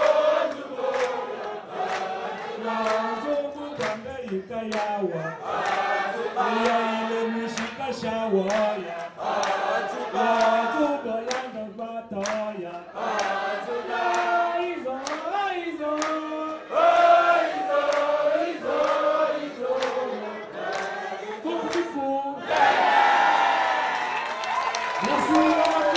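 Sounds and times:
sharp hand claps: 0.0 - 2.2, 2.8 - 3.1, 3.8 - 5.0, 5.6 - 5.9, 6.6 - 6.8, 7.5 - 11.6, 12.2 - 14.4, 15.0 - 17.1, 17.8 - 21.0, 21.6 - 22.0, 23.9 - 25.9
crowd singing a chant: 0.0 - 24.0.

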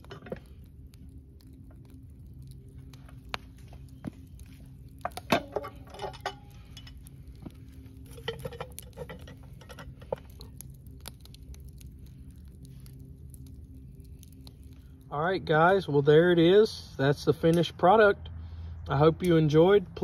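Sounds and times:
metal lids clanking and scraping: 5.1 - 7.0, 8.1 - 10.2.

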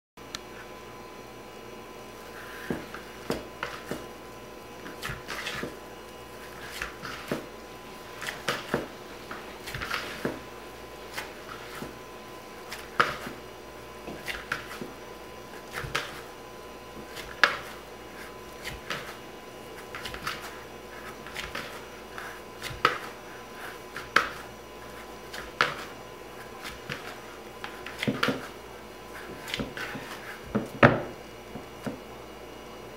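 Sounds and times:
dough squishing as kneaded: 2.2 - 32.2.

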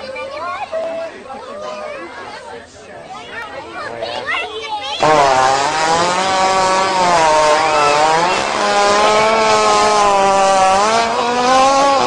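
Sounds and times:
hippopotamus farting: 5.0 - 12.0.

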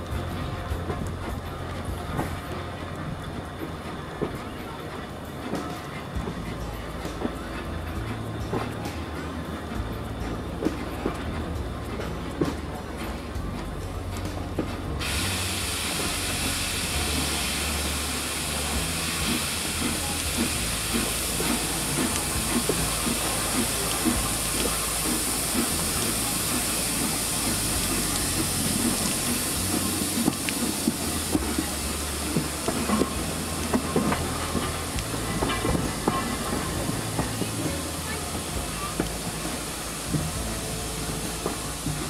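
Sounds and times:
steam hissing: 0.0 - 42.0
train rumble: 0.0 - 42.0
wheels clicking over rail joints: 0.0 - 42.0.

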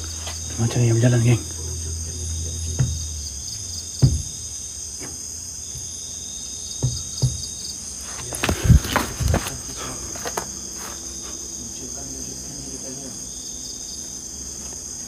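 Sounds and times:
crickets chirring: 0.0 - 15.0
dull thuds: 2.7 - 9.6.

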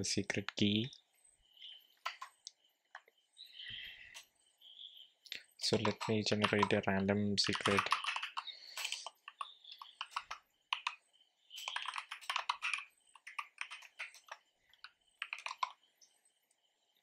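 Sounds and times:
computer keyboard typing: 2.0 - 2.4, 5.6 - 15.8.

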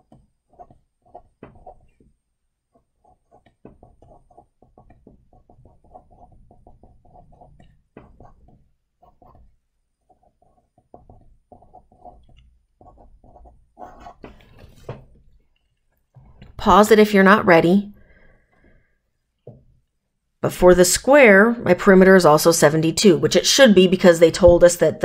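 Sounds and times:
felt-tip pen writing on paper: 0.0 - 14.9.

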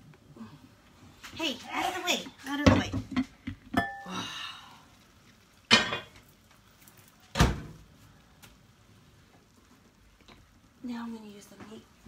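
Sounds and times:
cookware clinking: 3.7 - 4.1, 5.7 - 6.2.

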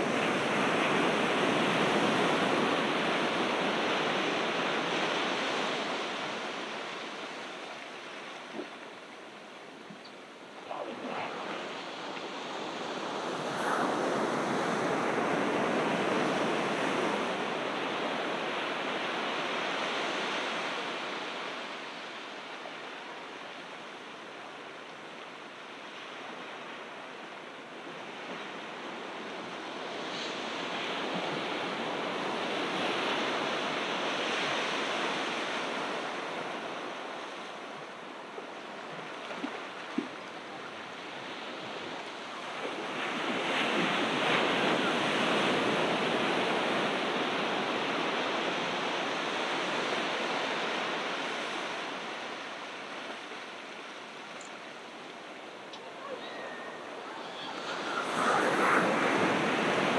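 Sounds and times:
ocean surf breaking: 10.4 - 21.3, 55.5 - 59.9.

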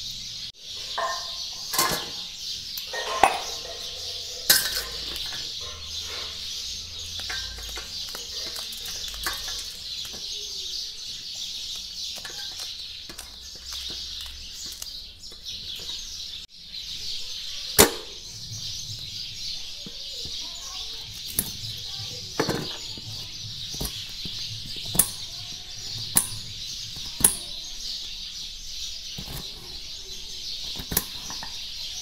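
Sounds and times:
birds chirping: 0.0 - 32.0
steel tumbler clanking on plate: 1.0 - 6.3
knife scraping on steel plate: 2.9 - 6.5.

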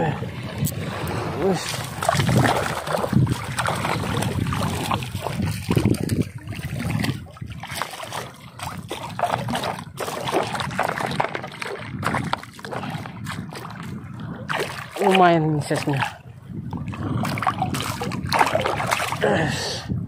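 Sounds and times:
shallow seawater splashing: 0.0 - 19.5.

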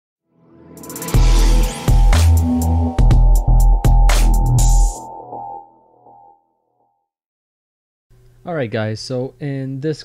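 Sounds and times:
electronic music: 0.3 - 6.5
heavy bass hit: 1.2 - 5.0.

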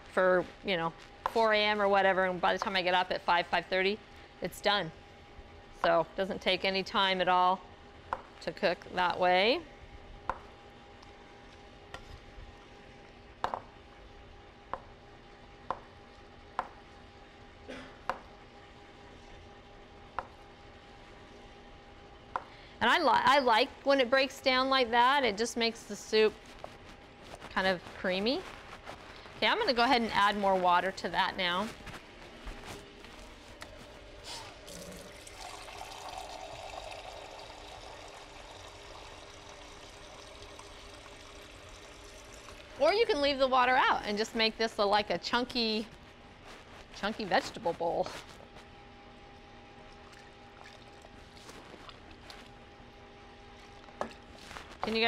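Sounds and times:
water pouring into a pot: 34.6 - 43.1.

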